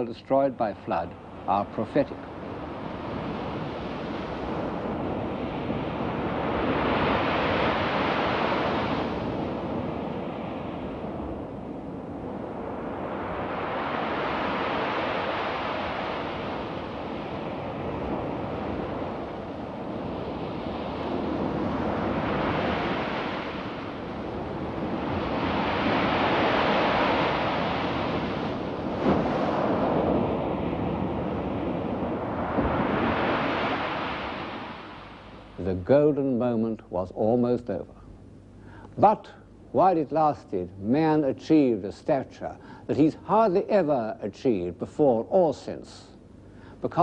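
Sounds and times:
rushing wind: 0.9s - 35.6s.

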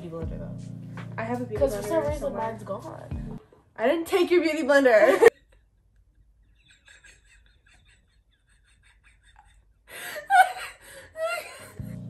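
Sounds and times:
girls laughing: 4.9s - 11.7s.

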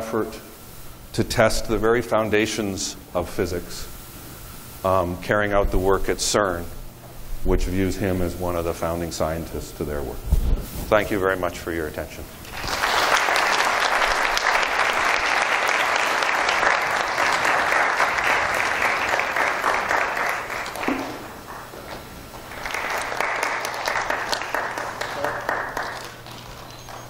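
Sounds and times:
audience applauding: 12.5s - 27.0s.

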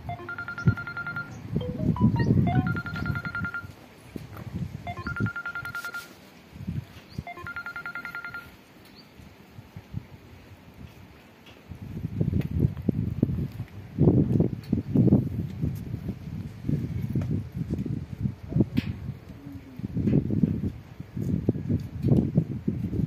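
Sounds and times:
electronic ringtone tune: 0.0s - 3.8s, 4.9s - 6.2s, 7.3s - 8.6s.

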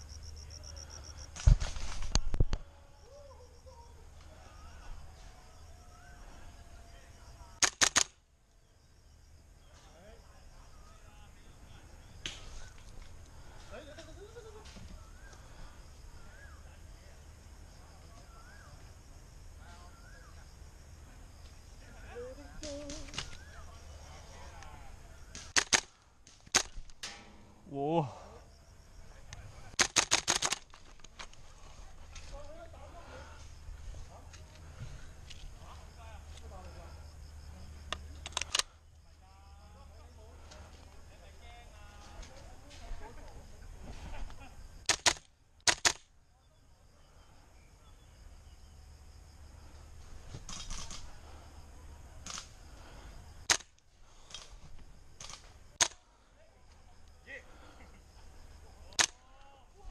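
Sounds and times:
airsoft rifle shots: 7.6s - 8.2s, 25.3s - 27.5s, 29.8s - 30.8s, 44.8s - 46.0s, 53.5s - 53.7s.

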